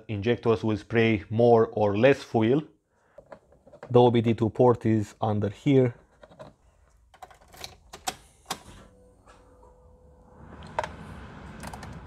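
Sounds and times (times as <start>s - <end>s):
faint steady whine: 8.6s - 12.0s.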